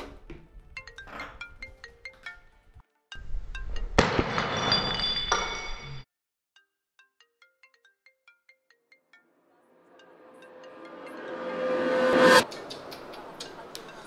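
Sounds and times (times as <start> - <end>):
glass jar smashing on floor: 4.0 - 6.0
glass shards scattering: 4.0 - 6.0.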